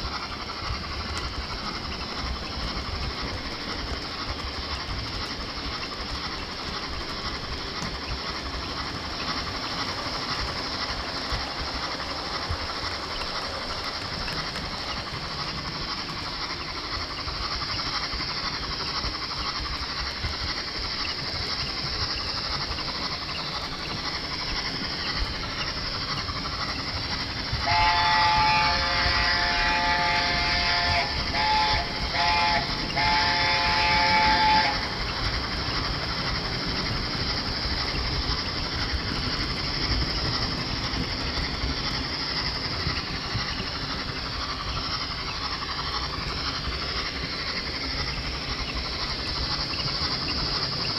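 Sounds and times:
model train motor whirr: 0.0 - 50.9
multi-note train whistle: 27.6 - 35.0.

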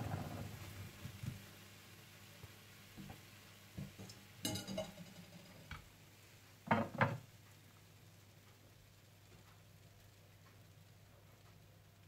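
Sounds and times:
dishes and utensils clicking: 4.4 - 5.4.

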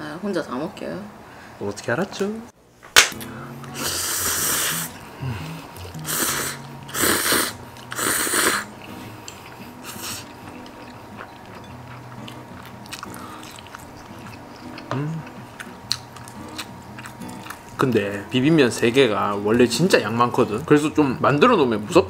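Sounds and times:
light background music: 3.1 - 22.0
person slurping noodles: 3.7 - 10.4
wet chewing: 4.9 - 18.1.

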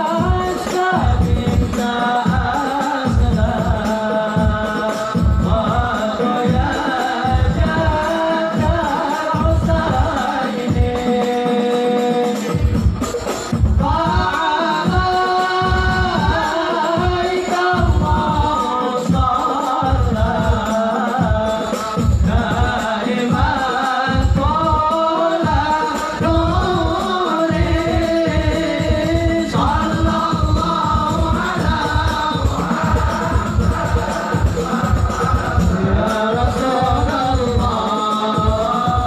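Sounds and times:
drums beating: 0.0 - 39.0
men singing together: 0.0 - 39.0.

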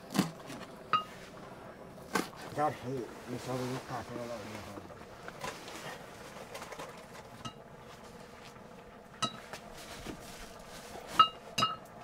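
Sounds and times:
ladle clinking against metal pot: 11.2 - 11.9.

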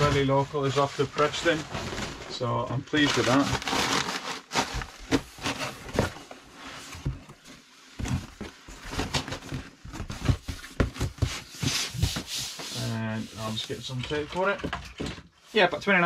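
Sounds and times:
paper rustling and crackling: 0.0 - 6.4
cardboard flaps scraping and knocking: 3.2 - 15.3.

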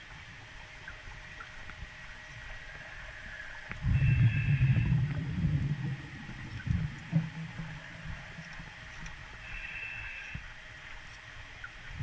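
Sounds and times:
steady hiss: 0.0 - 12.0
low underwater rumble: 2.6 - 9.5.

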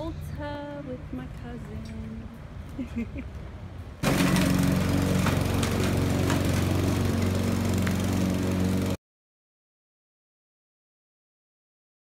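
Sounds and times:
lawn mower engine running: 4.0 - 9.0.

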